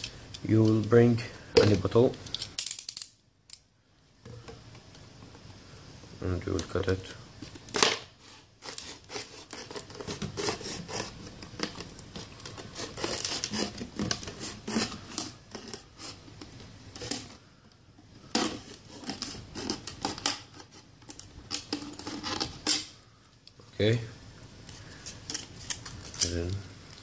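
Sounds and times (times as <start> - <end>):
knife scraping plastic bottle: 8.2 - 16.4, 18.3 - 20.9, 21.5 - 22.8.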